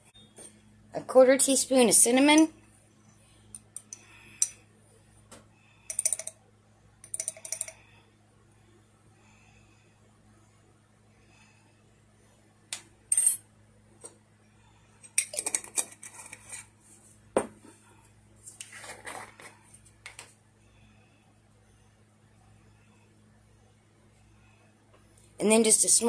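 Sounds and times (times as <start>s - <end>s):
utensils clinking on metal bowl: 5.9s - 6.4s, 7.0s - 7.8s.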